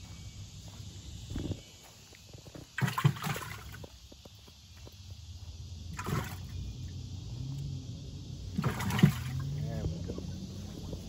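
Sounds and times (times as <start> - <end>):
water splashing in cooler: 2.8 - 3.8, 5.9 - 6.6, 8.5 - 9.5
low steady rumble: 5.0 - 11.0.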